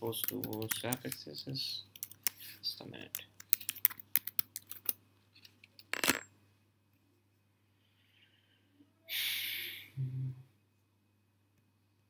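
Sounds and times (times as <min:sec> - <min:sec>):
typing on a keyboard: 0:00.1 - 0:01.2, 0:02.0 - 0:02.4, 0:03.1 - 0:05.0
short hiss: 0:09.1 - 0:10.0.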